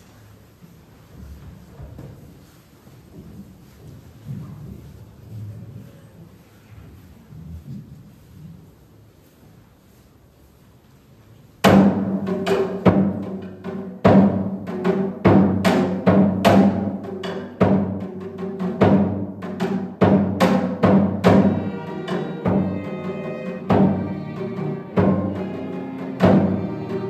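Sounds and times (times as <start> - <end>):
orchestra playing: 18.2 - 27.0.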